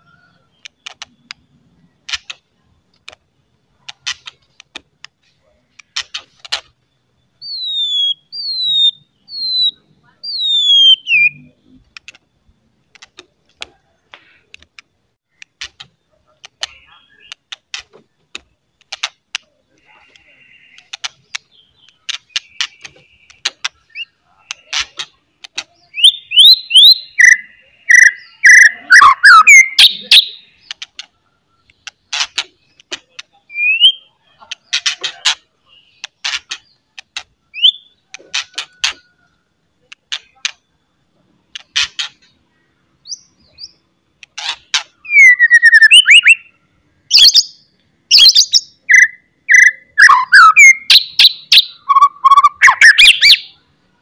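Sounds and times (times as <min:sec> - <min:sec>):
bird clicking chatter: 0:00.6 - 0:03.2, 0:03.8 - 0:06.8, 0:11.8 - 0:35.4
bird whistling song: 0:07.3 - 0:11.5, 0:25.8 - 0:30.8, 0:33.3 - 0:34.2, 0:37.5 - 0:39.3, 0:44.9 - 0:53.6.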